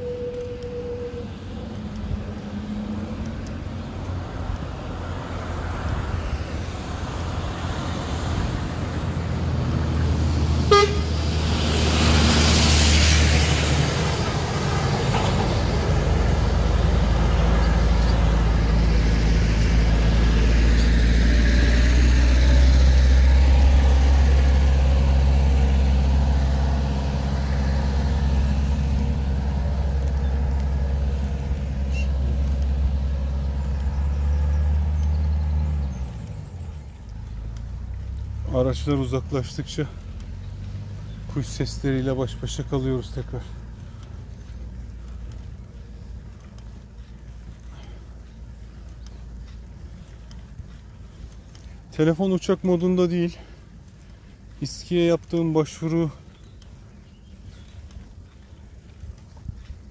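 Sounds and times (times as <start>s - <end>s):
low engine drone: 0.0s - 38.5s
vehicle rushing past: 1.8s - 51.7s
car horn toot: 10.6s - 11.2s.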